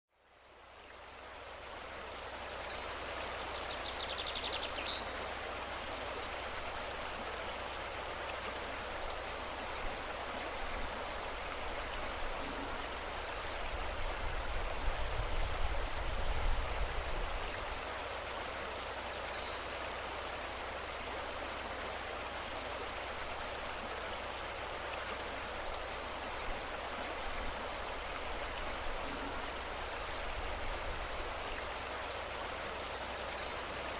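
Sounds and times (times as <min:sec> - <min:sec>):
stream water rushing: 0:00.2 - 0:33.9.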